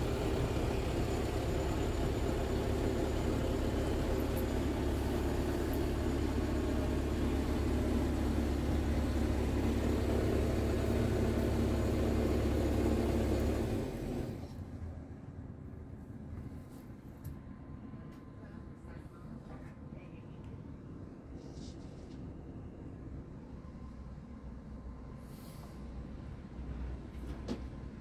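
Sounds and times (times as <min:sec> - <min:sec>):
diesel engine idling: 0:00.0 - 0:15.3.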